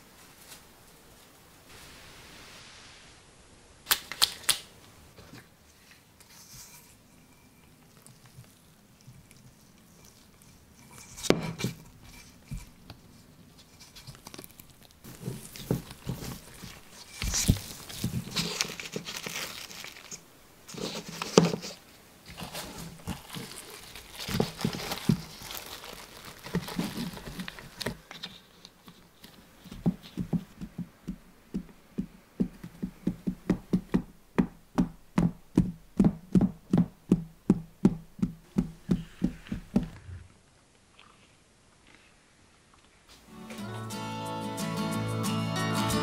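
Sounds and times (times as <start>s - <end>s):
cling film crinkling: 3.9s - 6.4s, 13.0s - 30.3s.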